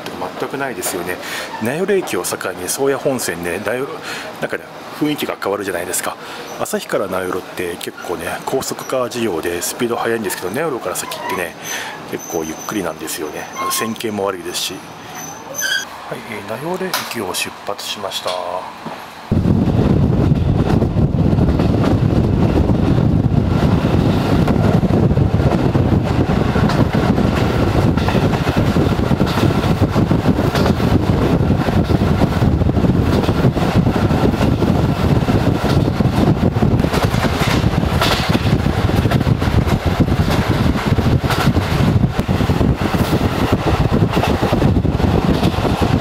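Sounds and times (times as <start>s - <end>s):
train rumbling at speed: 0.0s - 46.0s.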